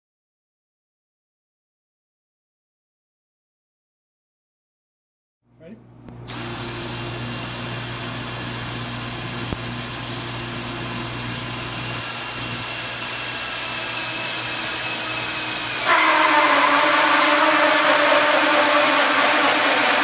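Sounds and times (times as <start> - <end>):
cordless drill cutting steel: 6.3 - 8.1, 11.3 - 20.0.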